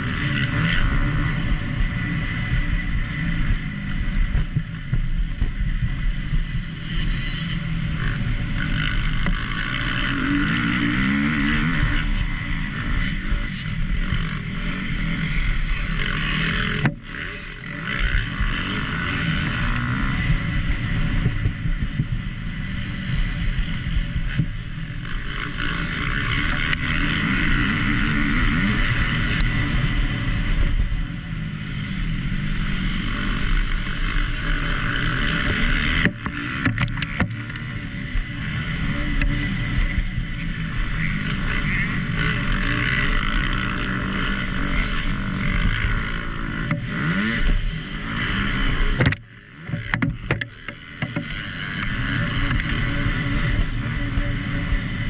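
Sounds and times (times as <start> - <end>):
motocross engine revving: 0.0 - 4.8, 5.9 - 55.0
sharp knocks: 49.0 - 51.3.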